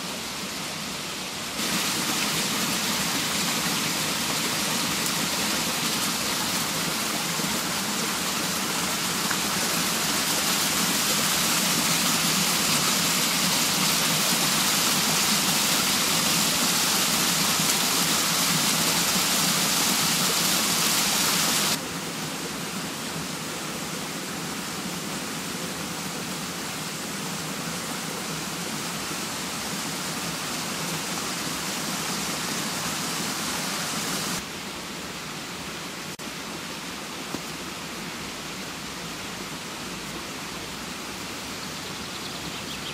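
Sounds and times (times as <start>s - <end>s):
water rushing through waterwheel: 0.0s - 42.9s.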